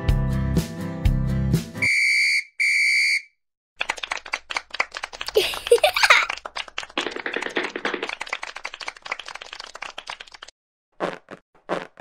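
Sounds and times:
applause: 0:03.8 - 0:10.5.

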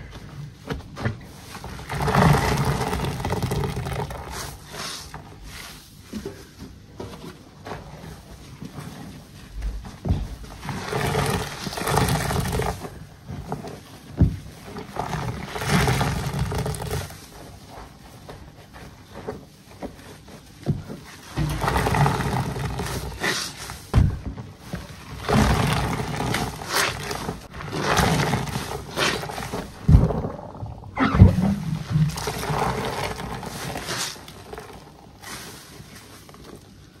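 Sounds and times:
sponge squelching: 0:00.0 - 0:37.0
wet squelching and sloshing: 0:24.5 - 0:37.0.

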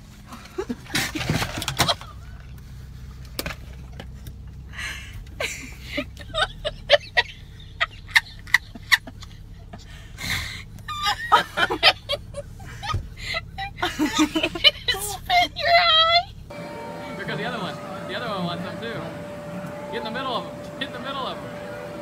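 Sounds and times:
woman laughing: 0:04.8 - 0:16.3.

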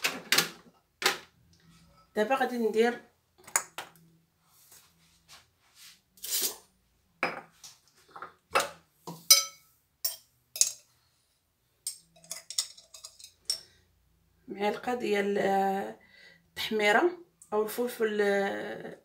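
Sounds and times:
metal spoon clinking on containers: 0:09.1 - 0:10.9, 0:11.8 - 0:13.7.

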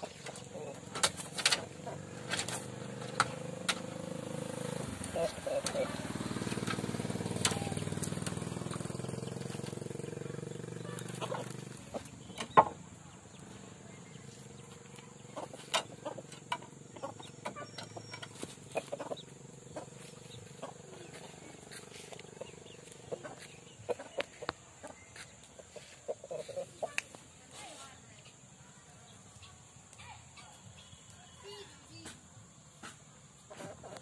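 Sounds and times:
rooster clucking: 0:00.0 - 0:12.7, 0:14.9 - 0:27.2
motor hum: 0:00.0 - 0:27.3
sharp taps and knocks: 0:15.4 - 0:19.2.

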